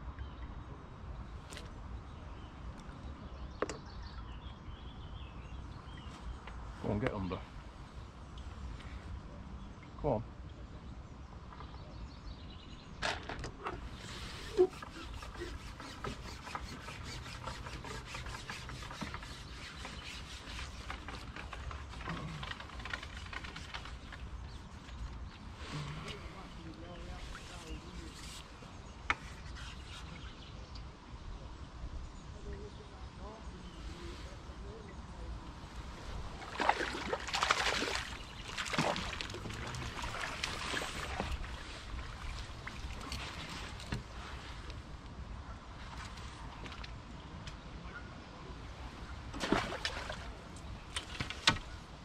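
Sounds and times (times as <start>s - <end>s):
rapid scratchy rubbing: 13.8s - 24.2s
fish splashing in water: 36.4s - 43.8s, 49.3s - 51.3s.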